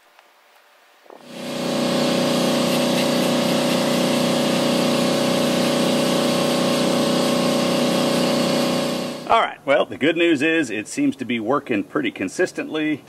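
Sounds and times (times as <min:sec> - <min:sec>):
blast gun hissing: 0:01.2 - 0:09.3
steady pitched hum: 0:01.2 - 0:09.8.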